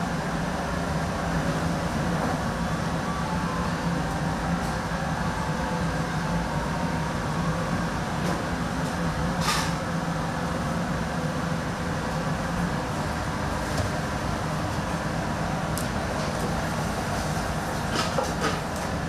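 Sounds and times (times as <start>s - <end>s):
kitchen burners and ventilation roar: 0.0s - 19.0s.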